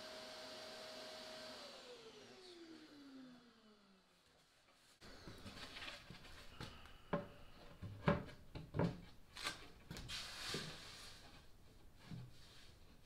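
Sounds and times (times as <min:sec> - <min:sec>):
wood sliding rub: 0:09.9 - 0:13.0.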